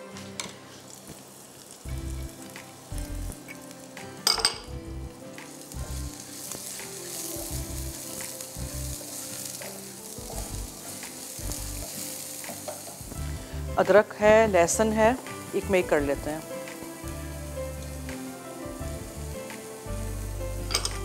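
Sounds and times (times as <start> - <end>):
onions sizzling in oil: 0.0 - 21.0
spatula stirring in pan: 5.6 - 13.2.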